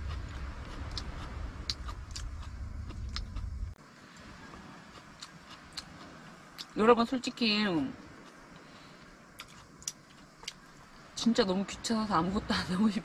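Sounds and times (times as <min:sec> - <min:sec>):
chewing: 0:00.0 - 0:06.8, 0:08.1 - 0:10.7
low rumble: 0:00.0 - 0:13.0.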